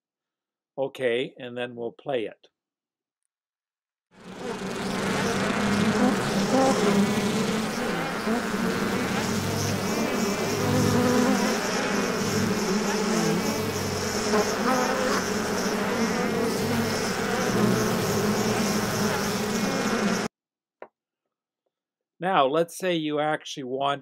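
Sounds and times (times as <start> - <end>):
bee buzzing: 4.2 - 20.3.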